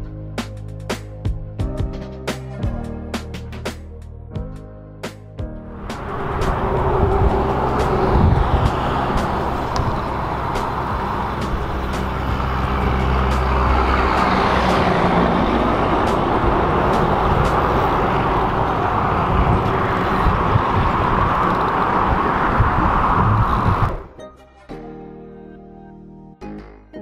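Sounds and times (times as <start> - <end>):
large vehicle engine rumble: 5.7 - 24.2
road traffic passing: 5.7 - 24.2.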